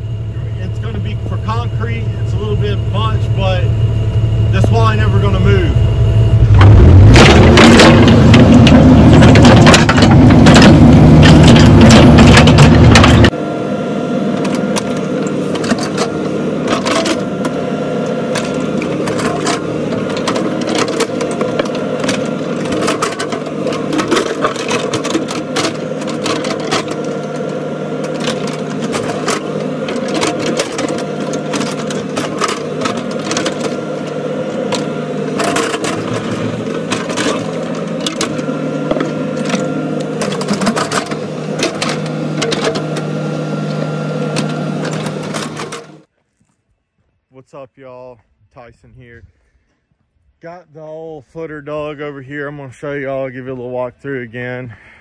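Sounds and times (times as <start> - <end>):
diesel engine running: 0.0 - 46.1
clicks and knocks: 6.6 - 13.3.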